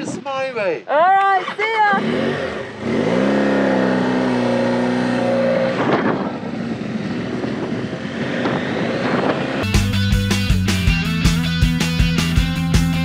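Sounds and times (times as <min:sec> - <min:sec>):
motorcycle engine accelerating: 0:01.4 - 0:13.0
wind noise: 0:04.2 - 0:09.7
rock music: 0:09.6 - 0:13.0.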